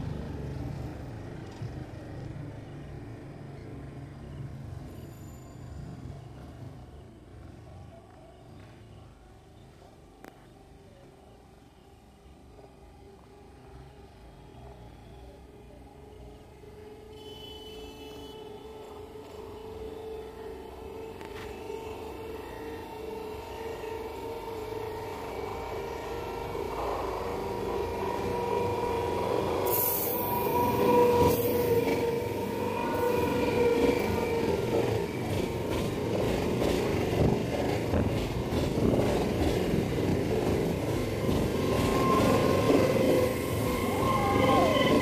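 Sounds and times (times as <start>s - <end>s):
electric train approaching: 0.0s - 45.0s
train wheels rumbling and rattling: 25.1s - 45.0s.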